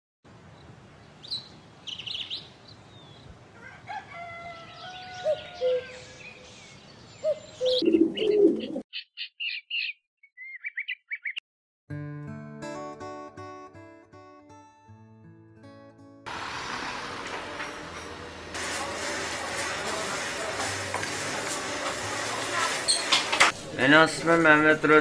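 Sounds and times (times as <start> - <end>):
small birds chirping: 0.5 - 3.4, 4.6 - 11.4
rooster crowing: 3.5 - 6.2.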